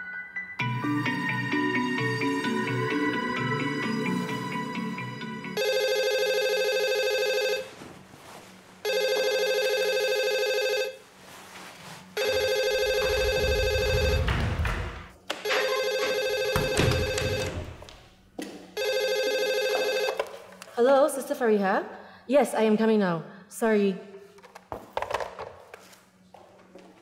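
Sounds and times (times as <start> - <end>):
telephone ringing: 4.1 - 7.8, 8.8 - 11.0, 12.2 - 14.6, 15.4 - 17.8, 18.8 - 20.3
rustling: 6.9 - 9.8, 10.4 - 13.5.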